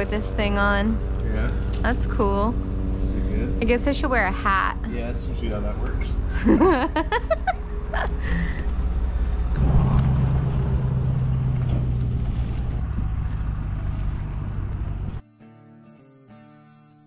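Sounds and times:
wind rumble on microphone: 8.5 - 15.2
acoustic guitar music: 9.1 - 17.0.

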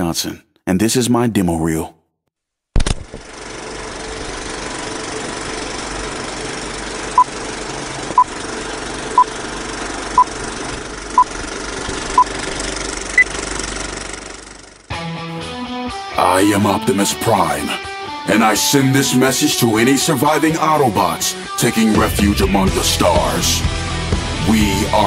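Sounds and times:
machine humming: 3.1 - 14.9.

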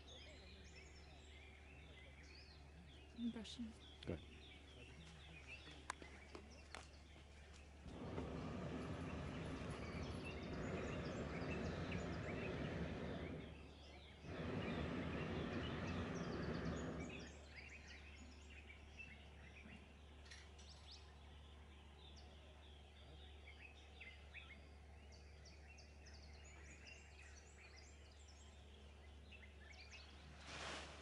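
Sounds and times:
birds chirping: 0.0 - 31.0
propane burner blasts: 7.8 - 18.2, 30.4 - 31.0.

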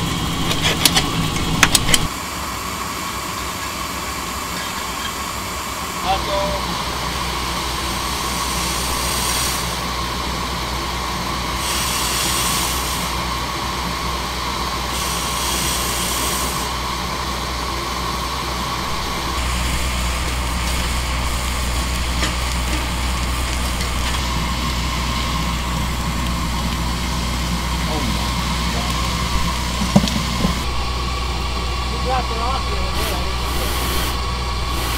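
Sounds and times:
steam hissing: 0.0 - 34.9
low rumble: 5.2 - 11.6, 16.7 - 34.9.

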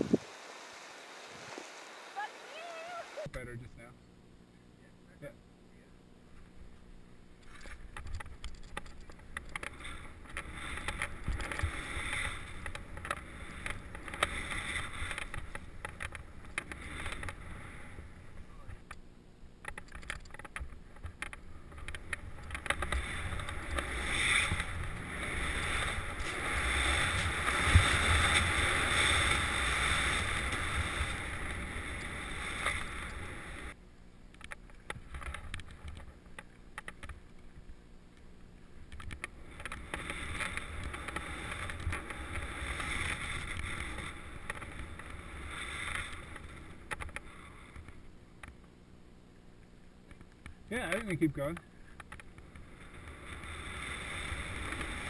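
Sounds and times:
wind rush on microphone: 0.0 - 0.5
skis hissing through snow: 0.0 - 3.3, 11.6 - 12.6, 23.0 - 33.8, 40.1 - 46.6, 53.1 - 55.0.

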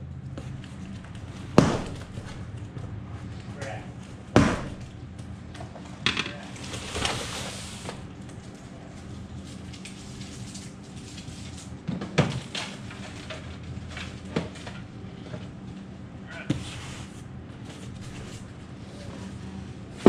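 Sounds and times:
steady low hum: 0.0 - 20.0
crinkly packaging rustle: 6.6 - 11.8.

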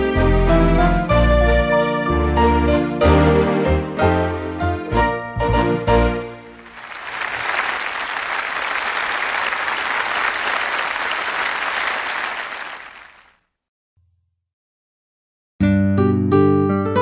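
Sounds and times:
crowd applause: 6.4 - 13.3.

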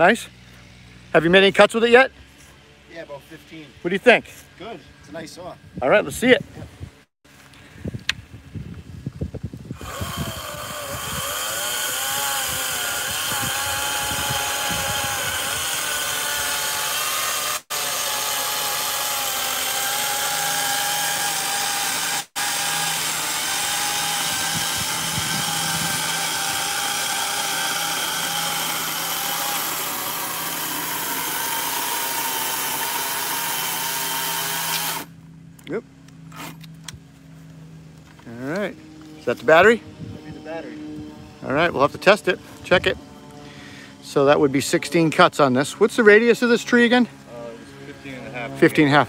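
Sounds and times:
cordless chainsaw cutting log: 9.7 - 35.2.

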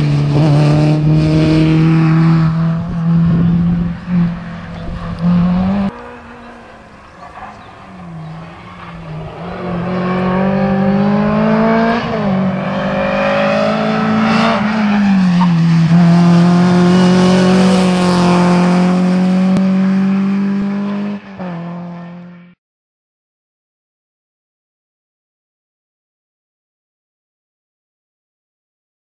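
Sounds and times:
rally car engine passing at speed: 0.0 - 22.6.

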